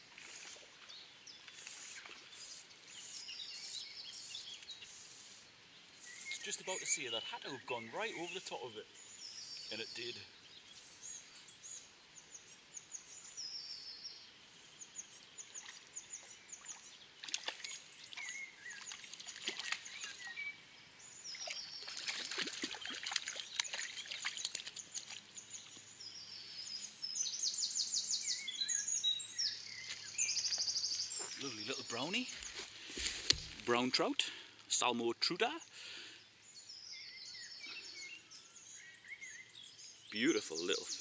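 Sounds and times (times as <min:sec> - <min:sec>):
songbirds chirping: 0:00.0 - 0:41.0
water splashes: 0:15.5 - 0:20.3, 0:21.3 - 0:25.3.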